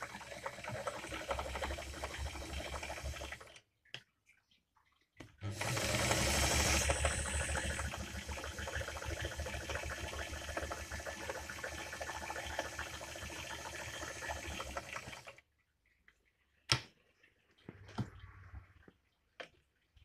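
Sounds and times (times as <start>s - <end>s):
sewing machine running: 0.0s - 3.4s, 5.4s - 11.4s.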